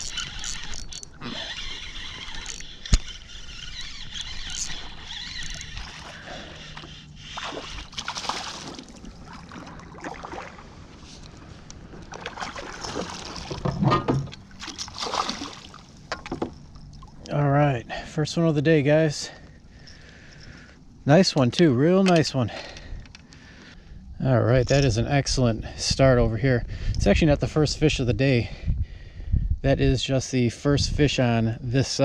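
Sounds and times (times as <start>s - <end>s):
water splashing and sloshing: 0.0s - 17.4s.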